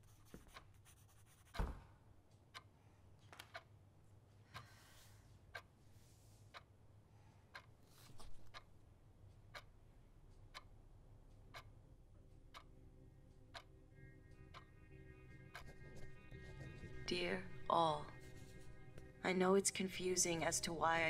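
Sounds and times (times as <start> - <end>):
clock ticking: 5.5 - 5.7, 7.5 - 7.8, 8.4 - 21.0
music: 12.4 - 21.0.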